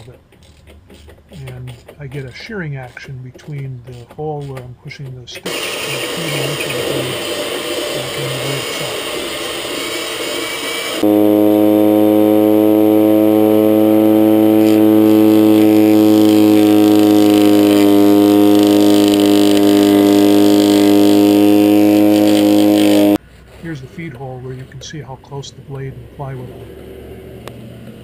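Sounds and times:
mower blade cutting stick: 0:00.0 - 0:09.0
electric drill running: 0:05.4 - 0:23.2
lawnmower running: 0:05.4 - 0:23.2.

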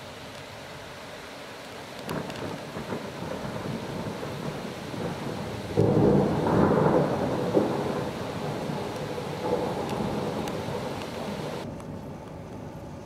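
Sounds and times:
rolling thunder: 0:02.1 - 0:12.2.

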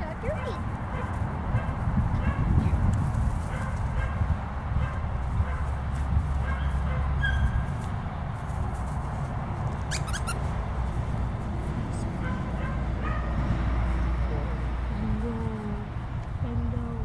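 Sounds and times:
wind rumble on microphone: 0:00.0 - 0:17.0
squeaky toy squeaking: 0:09.9 - 0:10.5.

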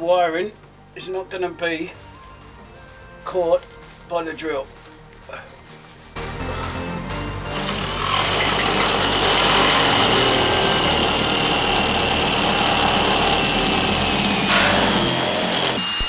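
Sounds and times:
power drill drilling through metal: 0:07.5 - 0:16.0.

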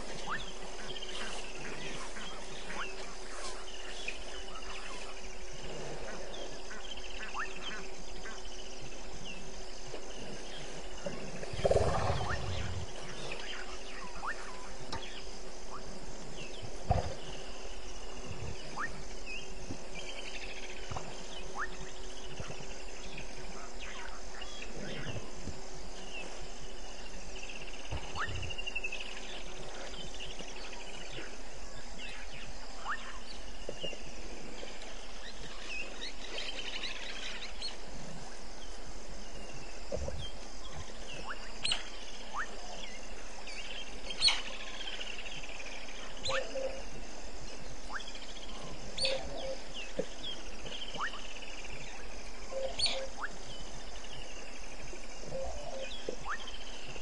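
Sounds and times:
short chirping calls: 0:00.0 - 0:05.2, 0:47.8 - 0:53.7
crickets trilling: 0:00.0 - 0:57.0.

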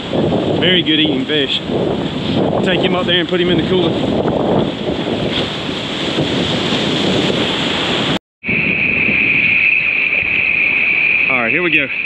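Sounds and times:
surf washing and splashing: 0:00.0 - 0:12.0
wind buffeting microphone: 0:00.0 - 0:12.0
steady high-pitched tone: 0:08.4 - 0:12.0.

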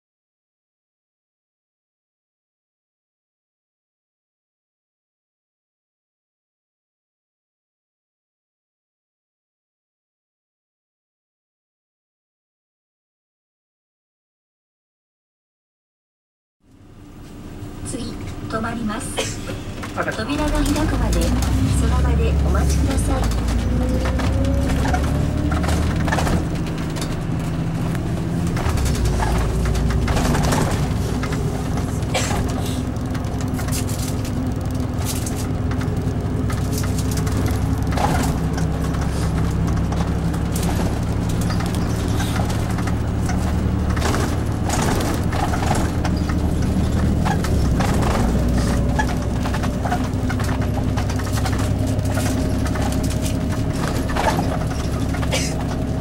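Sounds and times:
bus diesel engine running: 0:16.7 - 0:56.0
rattles and knocks of bus body: 0:19.2 - 0:56.0.

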